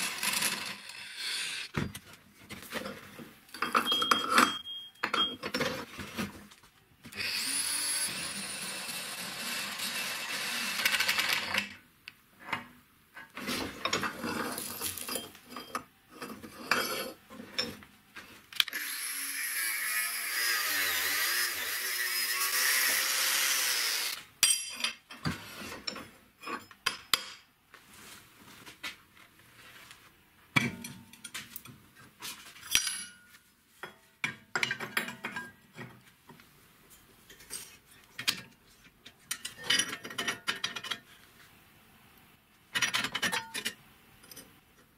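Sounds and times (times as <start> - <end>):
power drill cutting steel: 0.0 - 1.7, 7.2 - 11.6, 18.7 - 24.2.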